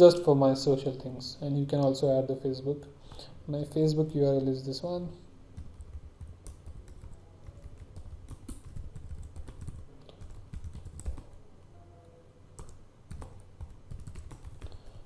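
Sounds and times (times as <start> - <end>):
computer keyboard typing: 5.6 - 11.4, 12.6 - 15.0.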